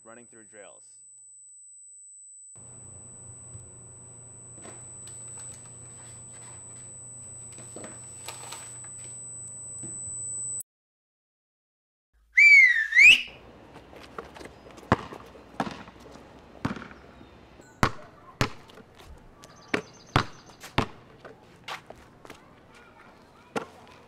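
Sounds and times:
wavering whistle blast: 12.4s - 13.3s
basketball bouncing on concrete: 14.4s - 16.0s, 16.6s - 17.0s, 17.8s - 19.0s, 19.6s - 21.4s.

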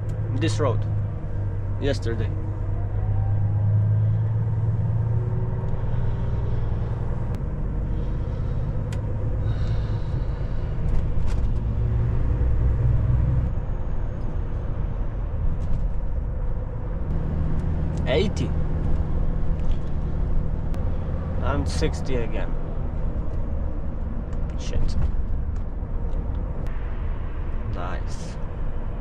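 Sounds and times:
truck diesel engine running: 3.7s - 14.0s.

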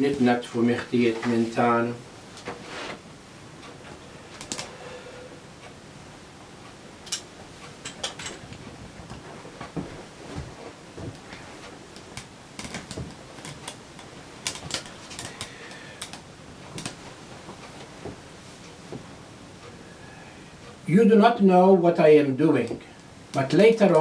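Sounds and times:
light clicks and knocks: 7.0s - 19.1s.

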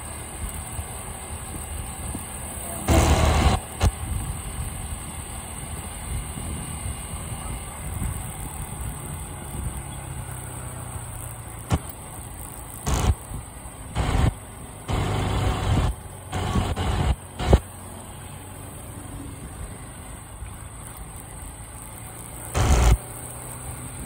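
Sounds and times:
motorcycle engine running: 0.0s - 24.0s
wind noise on microphone: 3.1s - 5.2s, 6.0s - 9.8s.

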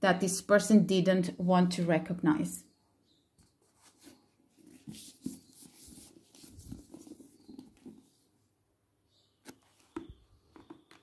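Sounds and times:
cards rustling and tapping: 3.4s - 8.2s, 9.4s - 11.0s.

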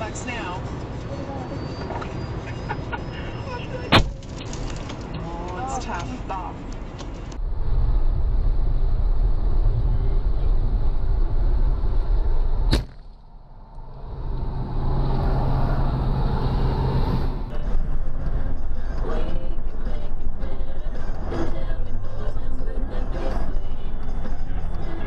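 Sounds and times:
car road noise: 0.0s - 25.0s
windshield cracking and shattering: 4.0s - 5.1s.

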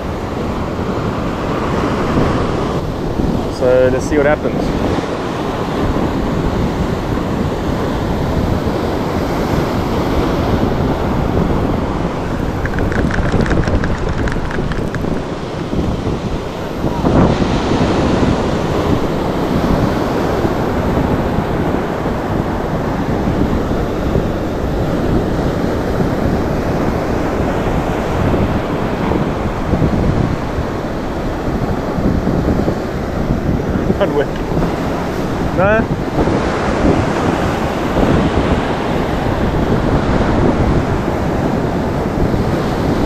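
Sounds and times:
surf breaking on shore: 0.0s - 43.0s
wind buffeting microphone: 0.0s - 43.0s
rapid ticks: 12.6s - 15.3s.

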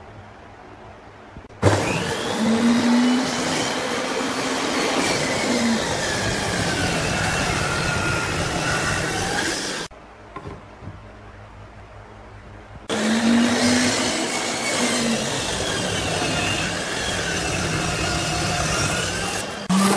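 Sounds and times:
table saw cutting board: 1.6s - 9.9s, 12.9s - 19.9s.

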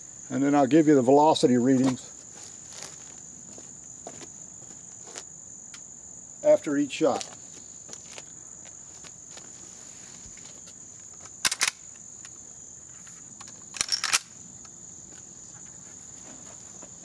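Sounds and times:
crickets chirring: 0.0s - 17.0s
sharp handling clicks: 11.4s - 12.4s, 13.4s - 14.3s.

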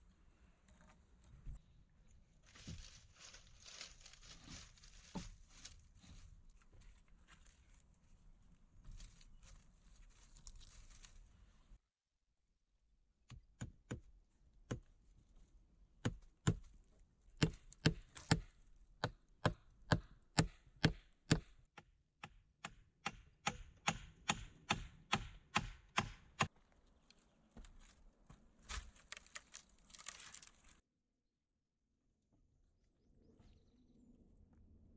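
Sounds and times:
hatchet chopping wood: 16.0s - 16.6s, 17.4s - 26.5s.

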